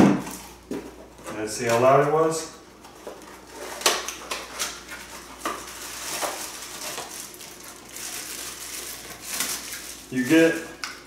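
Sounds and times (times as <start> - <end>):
plastic and paper rustling: 2.9 - 10.8.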